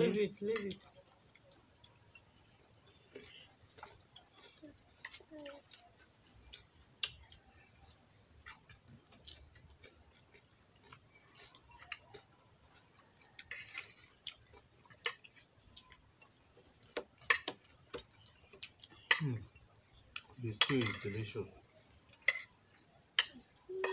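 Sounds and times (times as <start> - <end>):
cutlery clinking: 13.4 - 14.0, 16.9 - 17.7, 18.9 - 19.5, 20.2 - 21.5, 22.1 - 23.9
metal cutlery clicking on plate: 13.4 - 14.0, 20.5 - 21.4.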